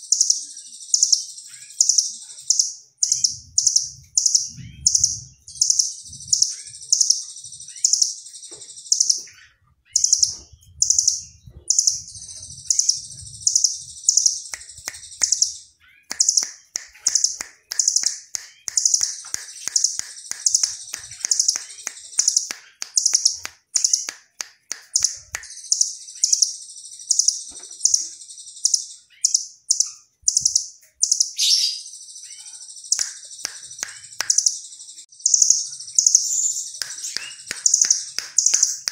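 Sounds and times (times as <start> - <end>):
bird calling high sharp notes: 14.1 - 26.3
bird trilling: 30.3 - 34.5.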